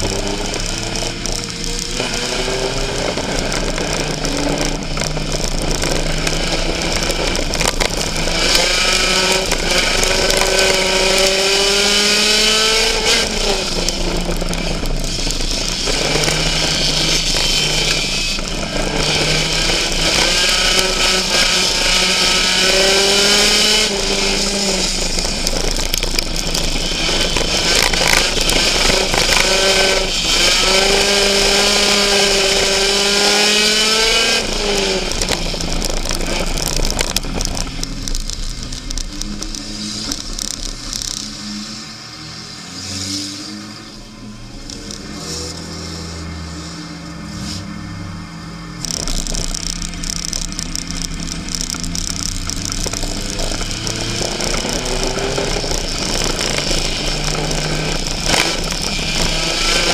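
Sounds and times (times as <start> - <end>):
race car engine revving: 0.0 - 59.9
track noise hiss: 43.6 - 59.9.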